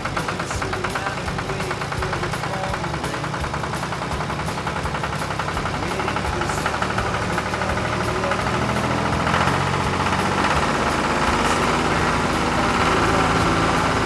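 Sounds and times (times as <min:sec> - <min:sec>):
tractor engines driving past: 0:00.0 - 0:14.0.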